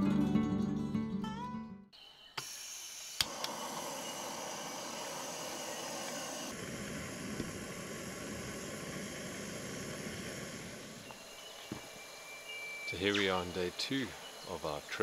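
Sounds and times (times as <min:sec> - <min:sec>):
gas stove burner hiss: 0:02.4 - 0:14.9.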